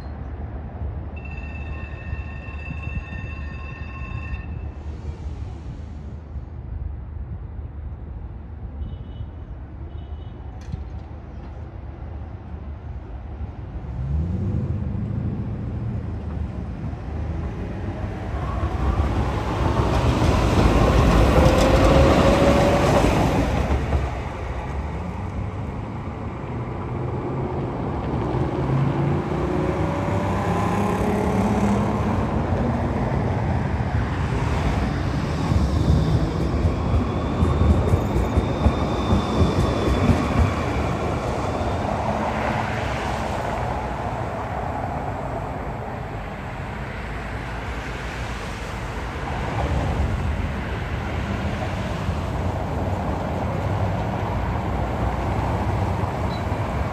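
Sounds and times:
short beeps: 0:01.2 - 0:04.8, 0:56.3 - 0:56.5
wheels rumbling on rails: 0:10.4 - 0:56.9.

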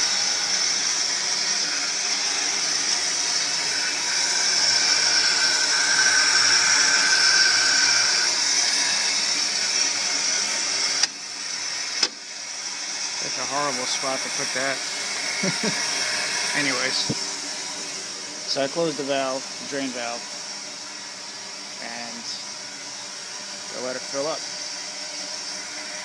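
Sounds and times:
valve clicks: 0:12.0 - 0:12.2.

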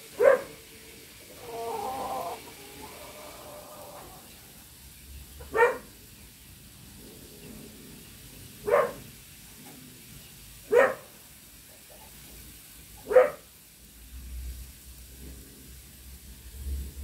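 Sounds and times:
dog barking: 0:00.2 - 0:00.6, 0:05.5 - 0:05.9, 0:08.6 - 0:09.0, 0:10.7 - 0:11.1, 0:13.0 - 0:13.5.

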